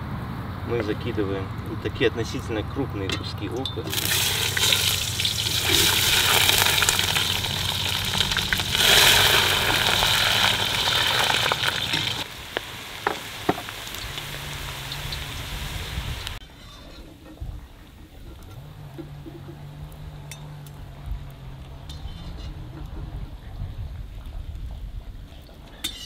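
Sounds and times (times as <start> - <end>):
onion sizzling in fat: 3.9 - 16.7.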